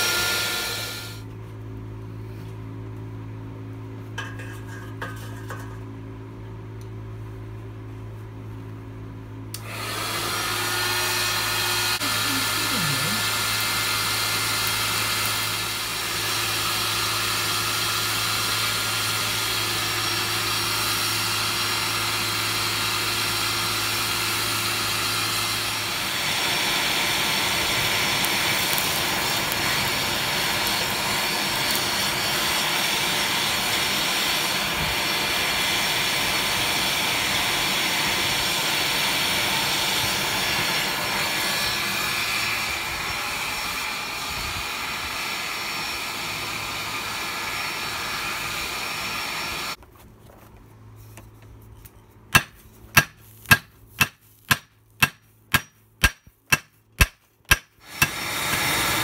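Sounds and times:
blower air rushing: 0.0s - 1.3s, 9.6s - 49.8s, 57.8s - 59.0s
low motor hum: 0.0s - 52.8s.

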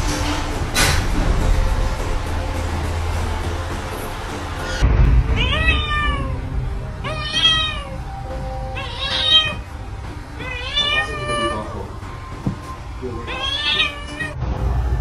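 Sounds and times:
cat meowing: 5.4s - 6.4s, 7.0s - 9.8s, 10.4s - 11.8s, 13.2s - 14.4s.

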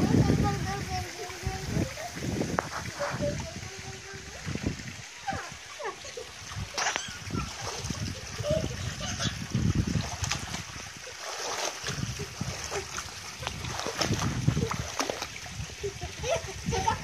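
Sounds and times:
pool water splashing: 0.0s - 17.0s.

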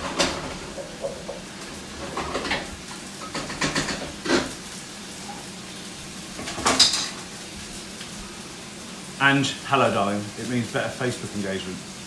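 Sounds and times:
food sizzling in a pan: 0.0s - 12.0s
cookware clattering and scraping: 2.0s - 4.5s.

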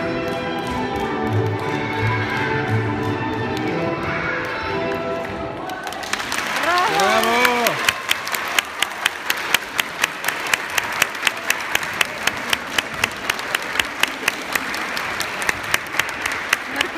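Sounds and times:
audience applauding: 5.6s - 16.9s.

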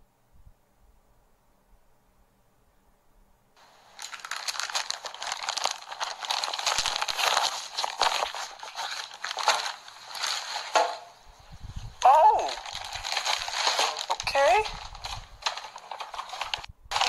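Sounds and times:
plastic wrapping and fabric rustling: 3.6s - 17.0s.

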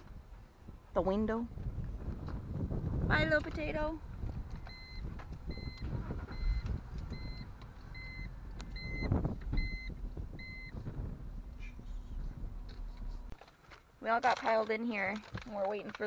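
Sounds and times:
engine and road rumble: 0.0s - 16.0s
car warning beeps: 4.6s - 10.8s.

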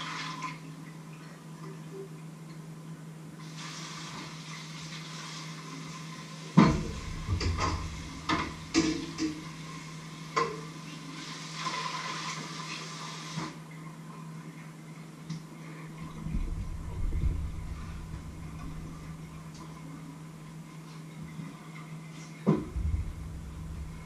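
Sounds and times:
tap water running into sink: 6.6s - 13.6s.

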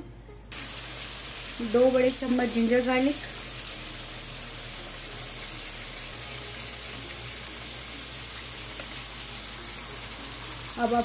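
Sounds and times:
chicken sizzling in hot oil: 0.5s - 11.0s.

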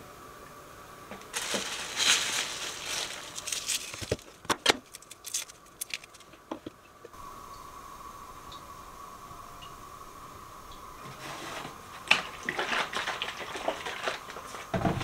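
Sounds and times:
garlic skins crinkling: 1.3s - 6.5s.

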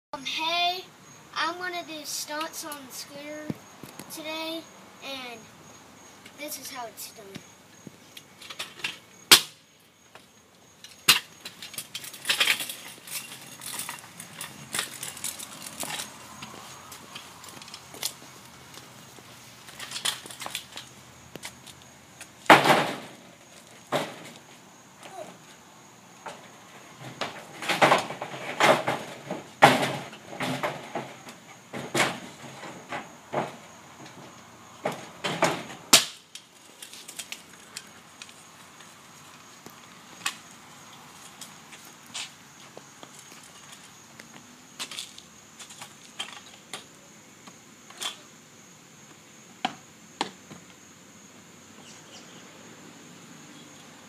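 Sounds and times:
scooter wheels rattling on concrete: 10.1s - 24.4s, 34.9s - 39.5s
scooter clattering on concrete: 10.1s - 24.5s
scooter landing on concrete: 22.4s - 23.2s
scooter clattering on roof panels: 22.5s - 24.4s, 26.2s - 36.2s.

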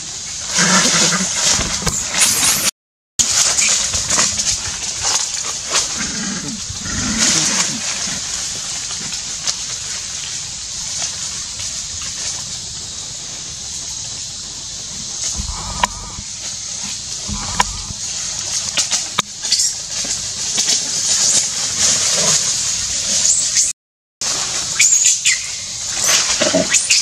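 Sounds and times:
steady high hiss: 0.1s - 26.3s
leaves and branches crackling: 3.2s - 23.7s
monkeys calling: 15.4s - 16.4s, 17.2s - 18.0s.

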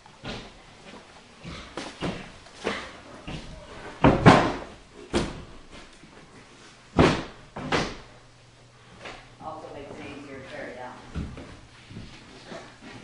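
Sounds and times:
knocks and thumps: 1.4s - 5.6s, 6.9s - 8.1s.

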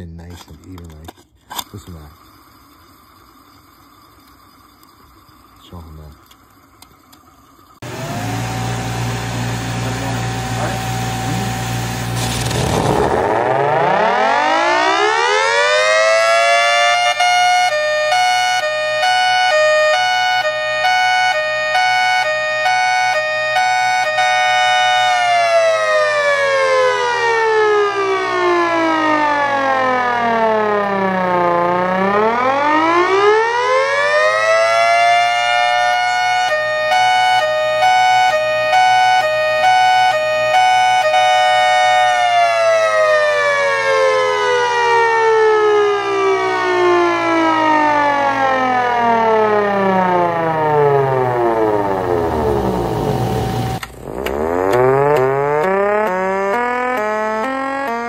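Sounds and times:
siren wailing: 7.8s - 58.0s.

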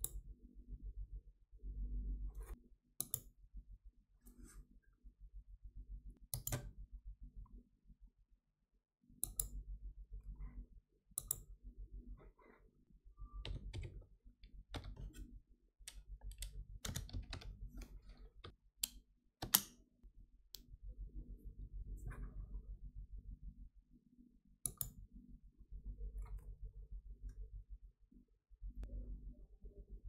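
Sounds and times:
low steady hum: 0.0s - 8.2s, 9.1s - 19.0s, 20.0s - 30.0s
mouse clicks: 3.0s - 3.3s, 6.3s - 6.7s, 9.2s - 9.6s, 11.2s - 11.5s, 18.8s - 19.8s, 24.6s - 25.0s
keyboard typing: 13.2s - 15.3s, 15.9s - 18.6s.

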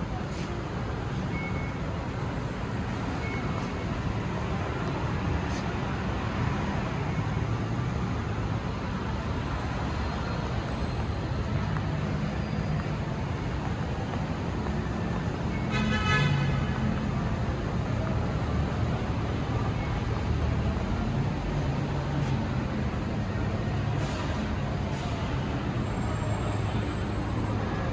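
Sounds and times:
city traffic rumble: 0.0s - 27.9s
car horn toot: 15.7s - 16.6s.

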